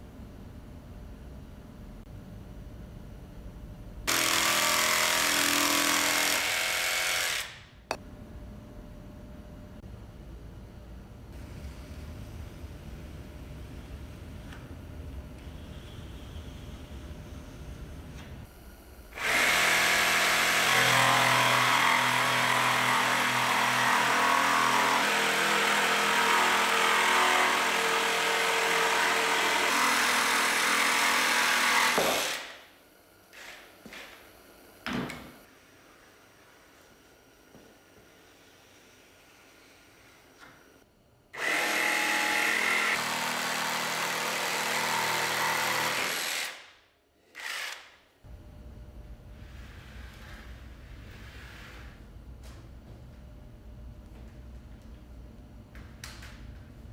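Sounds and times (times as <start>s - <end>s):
jigsaw cutting wood: 4.1s - 7.6s, 19.2s - 32.5s, 41.4s - 46.6s, 47.3s - 47.8s.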